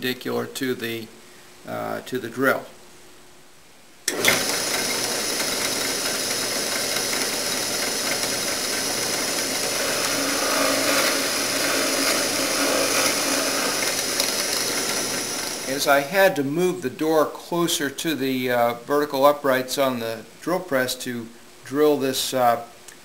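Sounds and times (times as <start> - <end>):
drill press boring into wood: 4.1 - 15.9.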